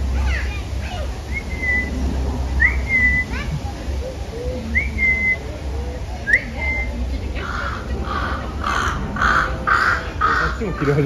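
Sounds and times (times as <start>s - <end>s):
short rising whistle: 1.3s - 2.0s
crow cawing: 7.4s - 11.0s.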